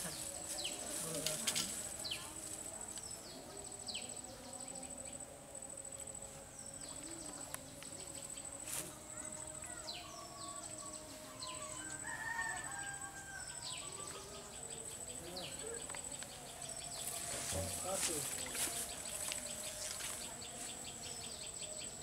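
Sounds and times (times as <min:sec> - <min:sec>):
insect trill: 0:00.0 - 0:22.0
rooster crowing: 0:11.7 - 0:14.0.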